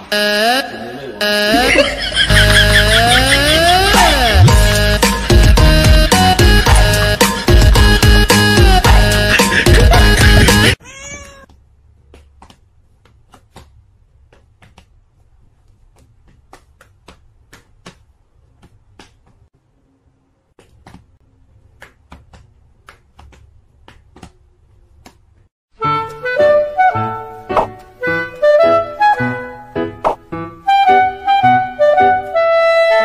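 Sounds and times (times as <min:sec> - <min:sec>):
cat meowing: 0:10.8 - 0:11.5.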